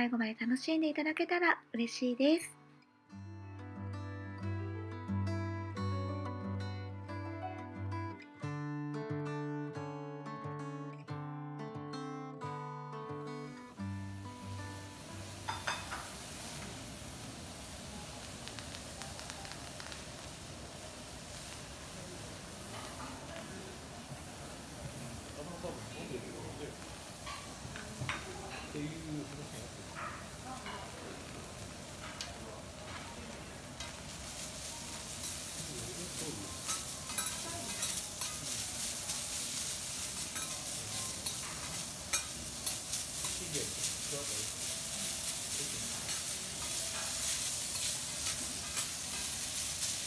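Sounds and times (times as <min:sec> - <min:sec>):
vegetables sizzling on griddle: 0:13.7 - 0:50.0
metal spatulas scraping and tapping: 0:36.7 - 0:38.6.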